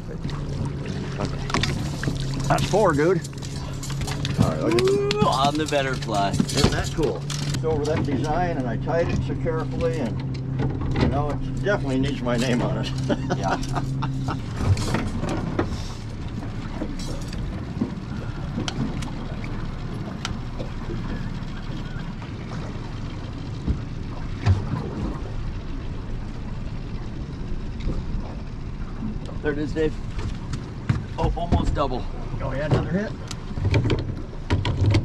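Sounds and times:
outboard motor rumble: 0.0 - 35.0
knocks on boat: 30.1 - 31.9, 32.6 - 35.0.

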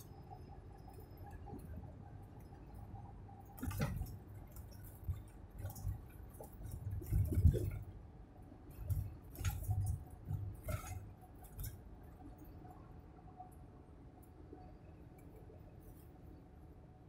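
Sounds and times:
knocks and rattles: 3.6 - 8.0.

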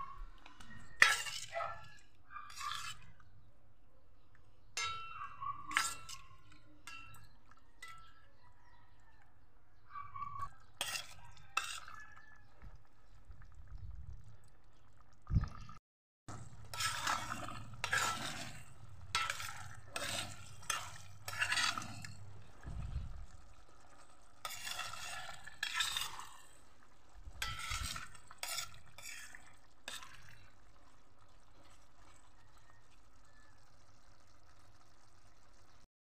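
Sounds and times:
spoon scraping a metal pot: 0.0 - 3.4, 4.7 - 8.2, 10.2 - 12.3, 16.3 - 30.6.

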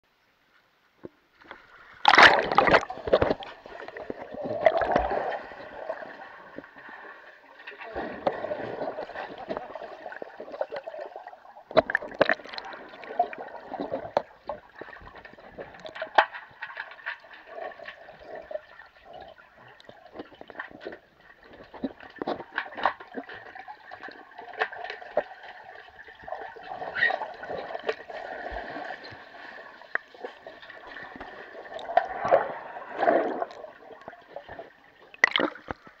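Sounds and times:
muffled underwater sloshing: 1.3 - 36.0
sharp splashes and clicks: 1.4 - 5.7, 11.7 - 13.1, 13.7 - 29.2, 33.3 - 36.0.

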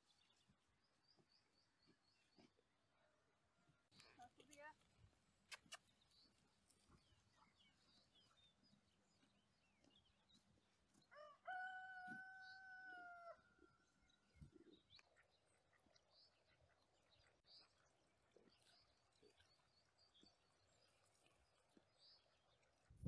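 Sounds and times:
small birds chirping: 0.0 - 2.7, 3.9 - 11.2, 13.9 - 23.0
rooster crowing: 11.1 - 13.4.

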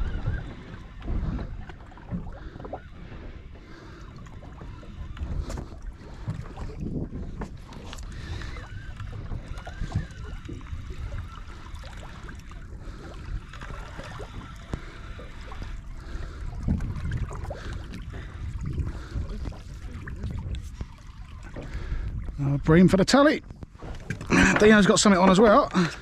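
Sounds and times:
water lapping against boat hull: 0.0 - 26.0
wind buffeting microphone: 0.0 - 26.0.

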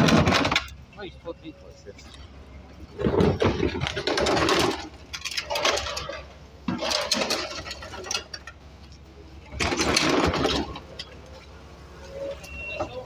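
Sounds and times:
plastic crates clattering: 0.0 - 0.7, 2.9 - 8.5, 9.5 - 11.1.

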